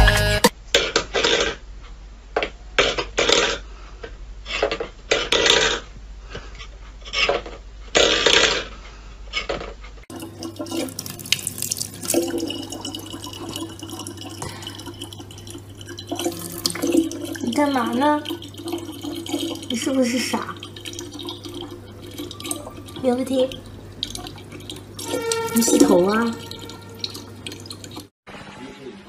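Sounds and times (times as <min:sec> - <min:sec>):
water trickling into plastic bottle: 0:10.1 - 0:28.1
metal bowl scraping on wooden floor: 0:15.9 - 0:23.5, 0:24.3 - 0:28.0.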